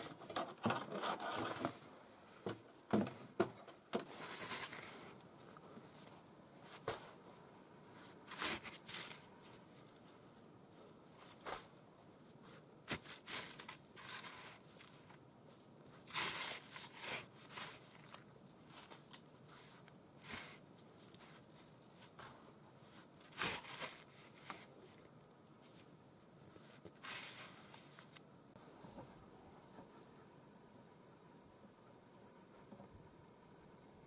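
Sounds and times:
snow shovel scraping snow: 0:04.2 - 0:05.0, 0:08.3 - 0:09.2, 0:16.1 - 0:17.8, 0:23.2 - 0:24.2, 0:27.0 - 0:27.6.

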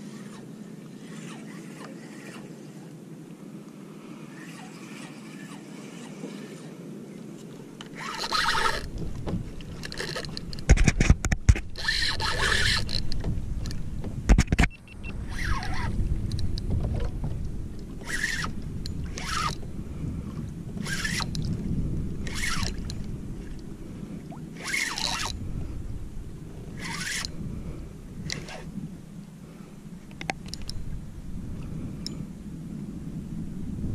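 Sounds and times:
steady low rumble: 0:12.8 - 0:24.6, 0:25.3 - 0:33.9
water splashing against kayak: 0:15.3 - 0:28.9.

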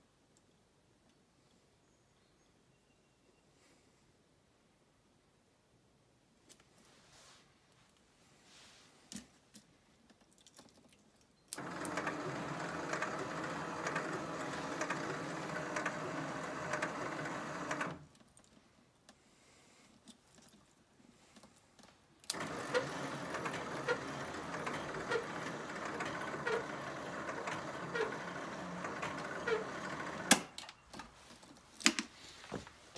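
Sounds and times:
motors whirring with light ticking: 0:11.5 - 0:18.2, 0:22.2 - 0:30.6.

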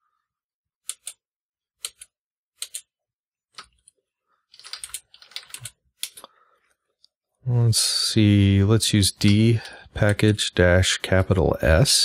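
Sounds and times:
keyboard typing: 0:04.5 - 0:06.3.

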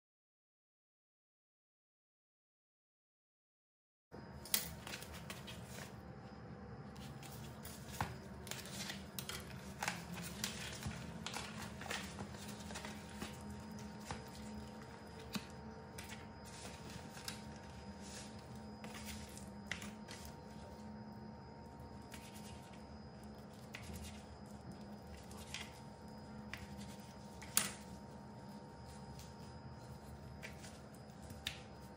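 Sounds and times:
steady low hum: 0:04.2 - 0:31.9
plastic gloves and packaging rustling: 0:06.9 - 0:31.9.

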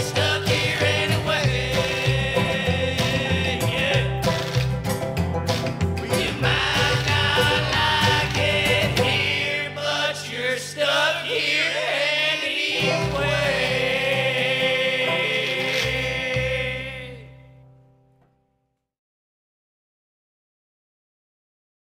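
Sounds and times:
voices singing: 0:00.0 - 0:04.8, 0:05.6 - 0:17.4
bluegrass band: 0:00.0 - 0:17.5.

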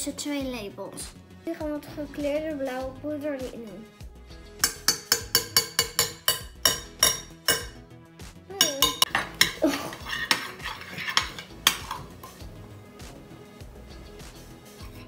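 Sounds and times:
metal spoon clinking on glass bowl: 0:04.6 - 0:07.8, 0:08.6 - 0:12.4.

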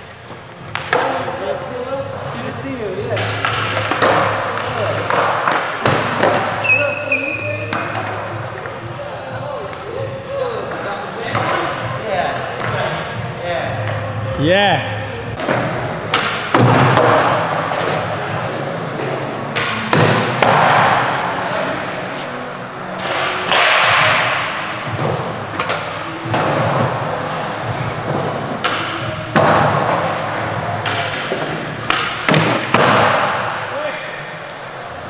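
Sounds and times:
skateboard impacts echoing: 0:00.0 - 0:01.4, 0:02.9 - 0:09.1, 0:09.7 - 0:14.3, 0:15.3 - 0:35.0
skateboard wheels rolling on concrete: 0:15.4 - 0:35.0.

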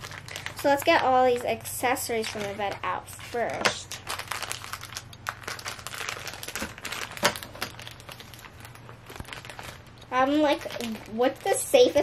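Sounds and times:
plastic bag crinkling: 0:00.0 - 0:12.0
plastic bag snap: 0:03.5 - 0:09.9.

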